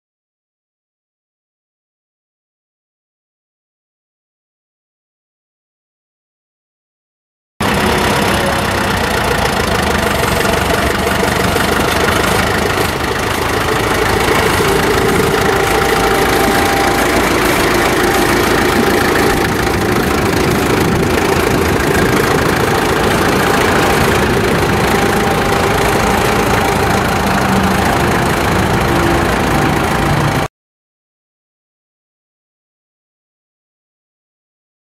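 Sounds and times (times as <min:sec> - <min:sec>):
tractor engine running: 0:07.6 - 0:30.5.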